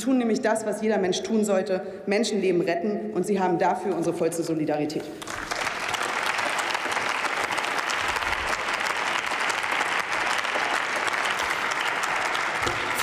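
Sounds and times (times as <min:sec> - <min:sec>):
crowd applauding: 0:05.2 - 0:13.0.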